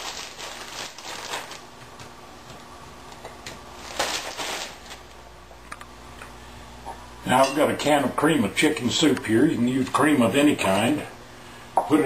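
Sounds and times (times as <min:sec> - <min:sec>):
rustling of frozen vegetables: 0:00.0 - 0:01.7, 0:03.8 - 0:05.2.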